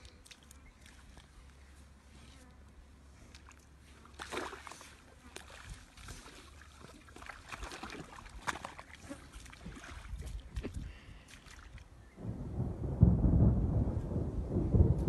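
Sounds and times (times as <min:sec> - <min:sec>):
mud and water sloshing: 0:00.0 - 0:02.4, 0:03.0 - 0:12.2
low steady rumble: 0:12.0 - 0:15.0.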